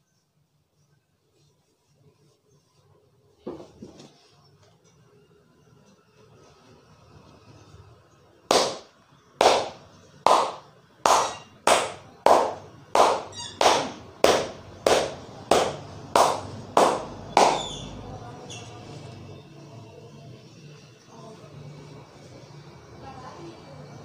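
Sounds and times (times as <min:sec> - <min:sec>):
hands slapping in massage: 0:08.5 - 0:17.7.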